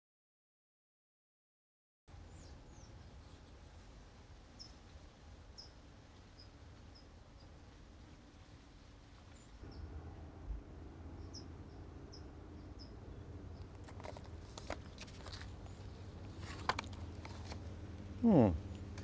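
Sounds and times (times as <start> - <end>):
low steady rumble: 2.1 - 19.0
rustles: 2.1 - 19.0
faint bird chirps: 4.5 - 4.9, 5.5 - 7.7, 11.0 - 13.8.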